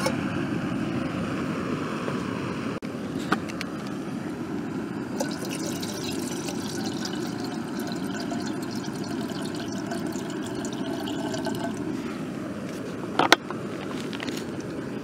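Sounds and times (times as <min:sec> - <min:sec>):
water pouring into metal kettle: 0:05.2 - 0:11.9.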